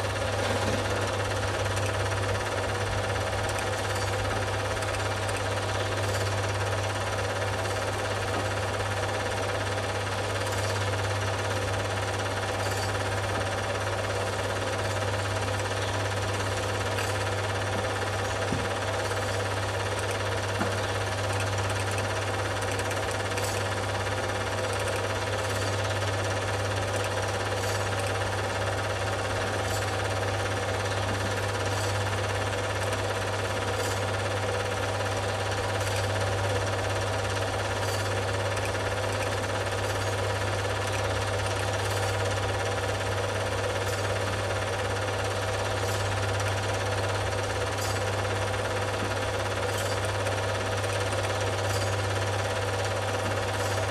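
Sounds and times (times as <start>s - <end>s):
film projector clatter: 0.0s - 53.9s.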